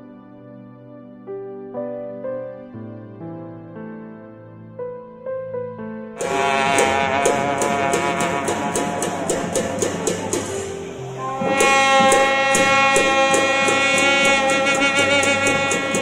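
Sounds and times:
brass horns sustained notes: 6.2 - 16.0
light percussion beat: 6.2 - 16.0.

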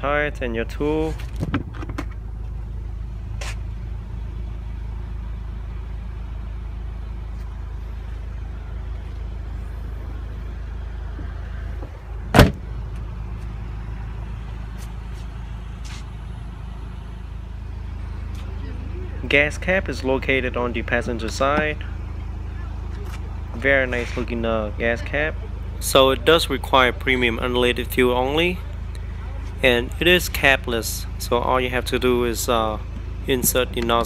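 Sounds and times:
steady low hum: 0.0 - 34.0
car hatch slamming shut: 11.8 - 12.8.

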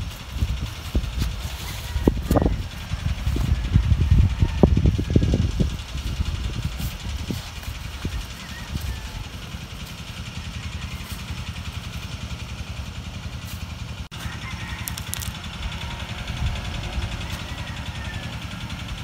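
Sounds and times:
wind buffeting microphone: 0.0 - 9.2.

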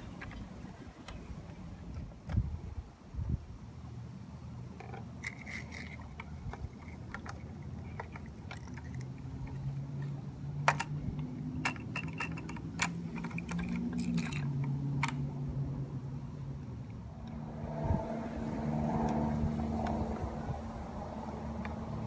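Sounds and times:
low engine hum: 0.0 - 22.0
toy clicks and scrapes: 4.8 - 15.2.

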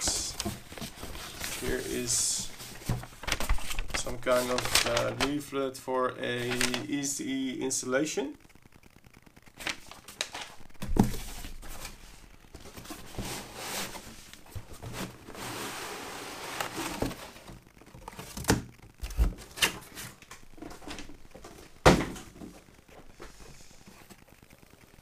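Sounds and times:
foam sheets rustling: 0.0 - 5.5, 9.6 - 17.6.

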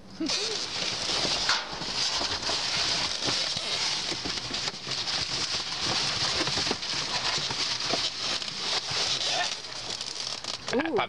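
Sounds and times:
paper and cardboard rustling: 0.2 - 11.0.

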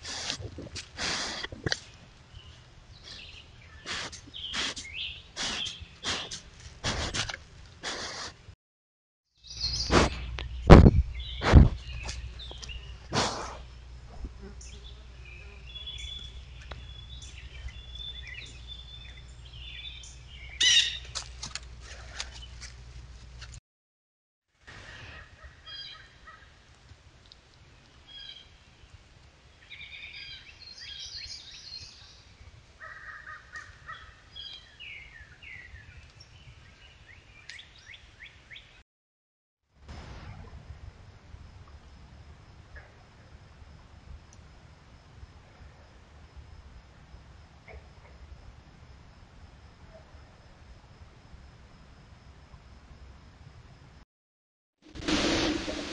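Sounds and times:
birds chirping and calling: 2.4 - 6.4, 14.6 - 21.2
loud sudden sound: 54.9 - 55.9.

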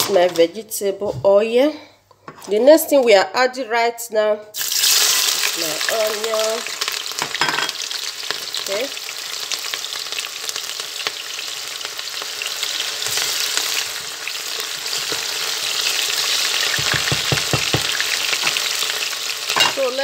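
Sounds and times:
onion sizzling in oil: 4.6 - 20.0
wooden spoon knocking pot: 16.7 - 18.6.

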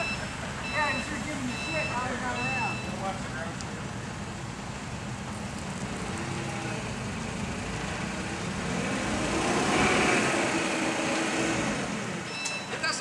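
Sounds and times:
forklift engine revving: 5.5 - 12.4.

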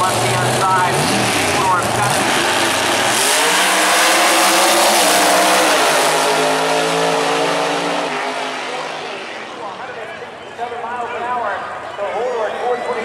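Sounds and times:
drag racing cars accelerating: 0.0 - 10.3.

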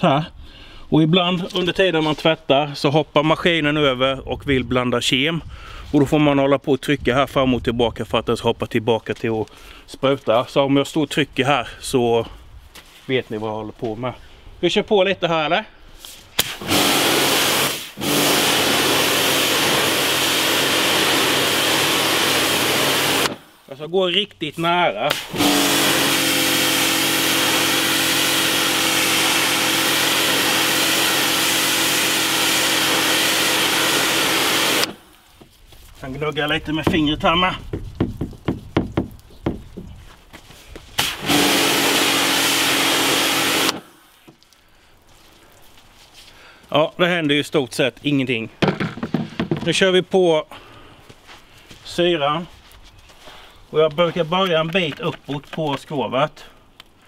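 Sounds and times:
water jet hissing on a hull: 16.0 - 23.6, 41.0 - 44.4
pressure washer spraying water: 16.4 - 23.6, 25.1 - 35.2, 41.0 - 44.0
pump humming: 16.6 - 23.6, 25.1 - 35.2, 41.0 - 44.3
light scratchy taps: 35.4 - 40.9.

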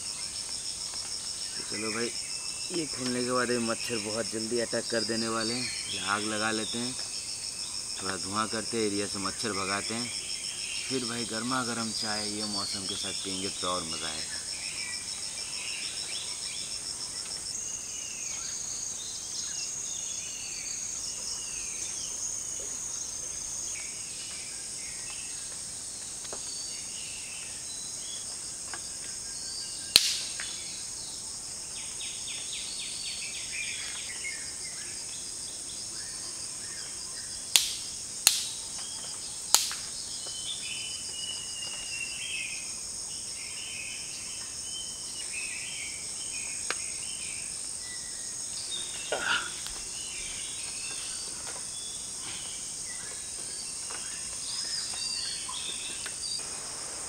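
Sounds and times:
high drone of insects: 0.0 - 57.0.

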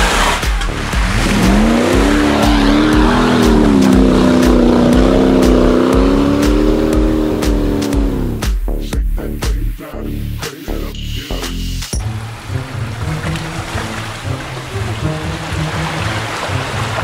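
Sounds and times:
car engine revving: 0.0 - 8.6, 12.0 - 17.0
music with thumping beat: 0.0 - 12.1.

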